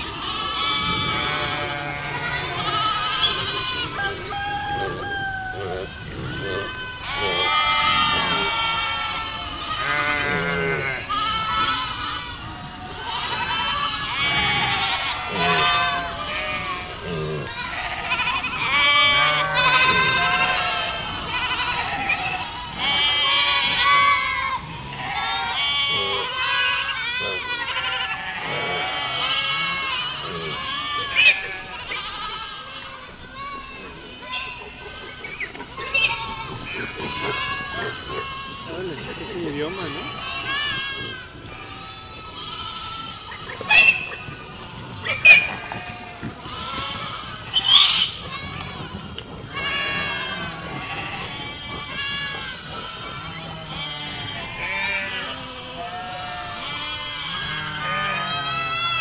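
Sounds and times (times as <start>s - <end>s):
goats bleating: 0.0s - 59.0s.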